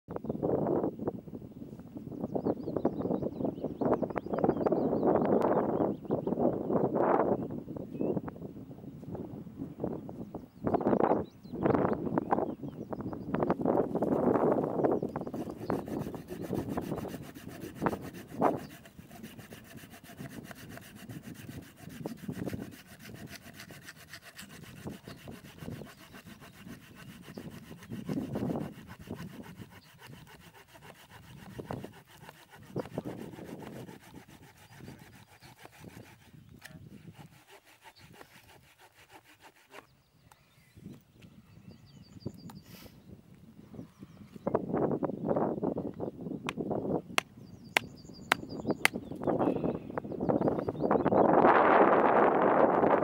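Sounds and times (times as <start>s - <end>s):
hand saw cutting log: 13.9s - 39.9s.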